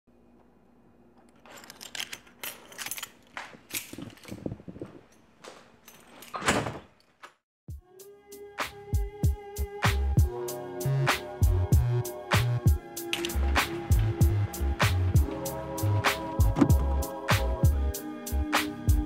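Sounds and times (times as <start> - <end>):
music with held note and drums: 7.7 - 19.0.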